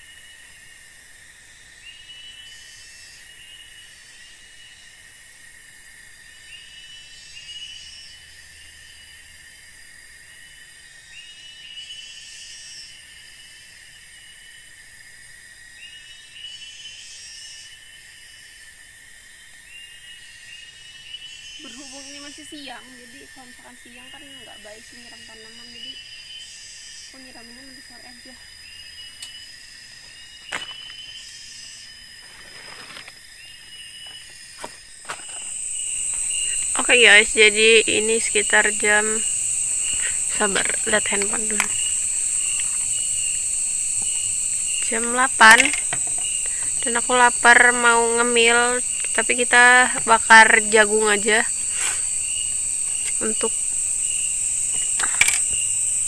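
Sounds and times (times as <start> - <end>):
insects chorus: 0.0 - 56.0
rising insect call: 0.0 - 56.0
high whistled calls: 35.2 - 55.8.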